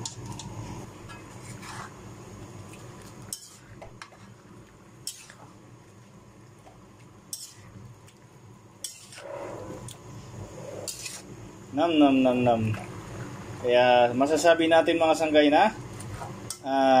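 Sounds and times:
metal spatula scraping pan: 1.4 - 1.9, 3.3 - 4.2, 8.8 - 9.6, 10.8 - 11.3.

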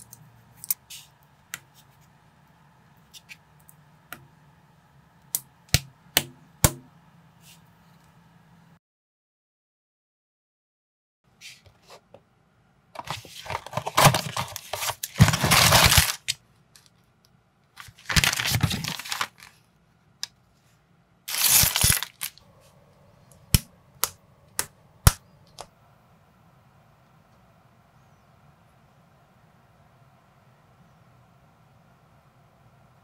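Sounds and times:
cardboard tearing and crinkling: 13.0 - 16.4, 17.8 - 19.6, 21.3 - 22.4.

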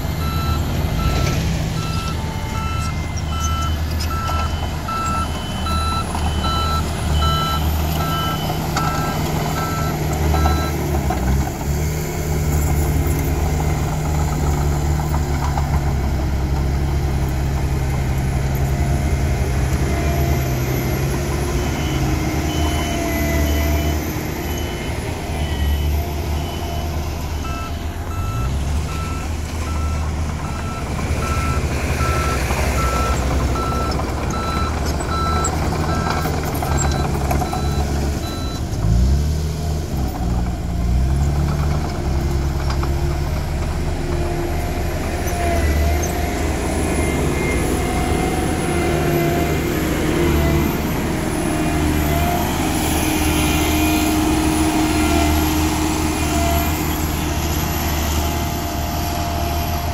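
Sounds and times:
diesel engine running under load: 0.0 - 59.9
reversing alarm beeping: 0.2 - 11.0, 20.0 - 38.7.

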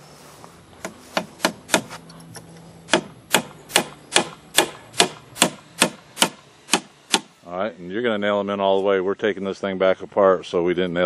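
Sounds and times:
hammer driving nail into wood: 1.2 - 1.9, 2.9 - 7.3.

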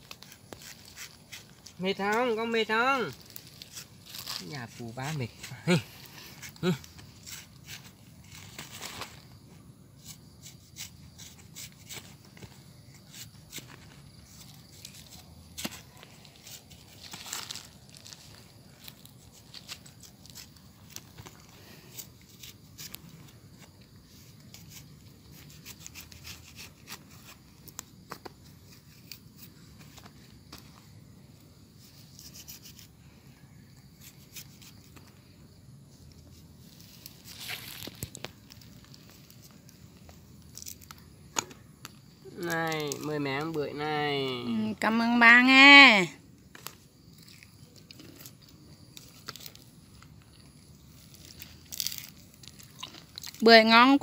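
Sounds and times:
knife scraping fruit rind: 0.0 - 2.5, 3.2 - 8.5, 10.0 - 17.2, 19.0 - 27.5, 31.8 - 33.0, 33.9 - 35.1
knife cutting fruit rind: 10.0 - 12.3, 24.2 - 27.4, 33.9 - 35.0.

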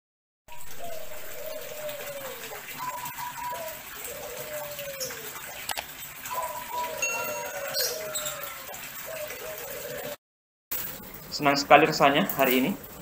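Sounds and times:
pigeon cooing: 0.5 - 10.2.

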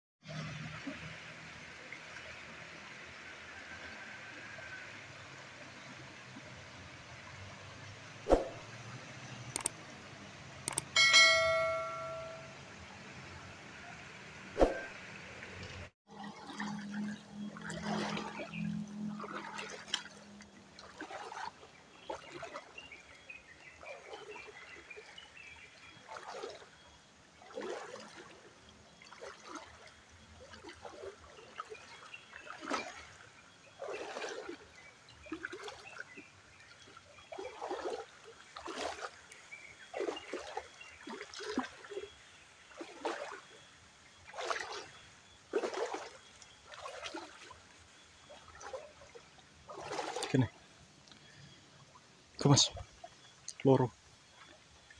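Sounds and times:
footsteps splashing in stream: 16.1 - 18.6, 19.2 - 23.2, 25.8 - 26.7, 27.3 - 28.4, 29.0 - 43.6, 44.2 - 51.3.

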